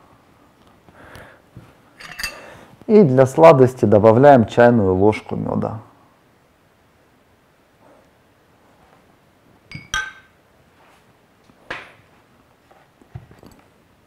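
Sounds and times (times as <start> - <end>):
metal spoon clinking on bowl: 2.0 - 2.5, 9.7 - 10.3.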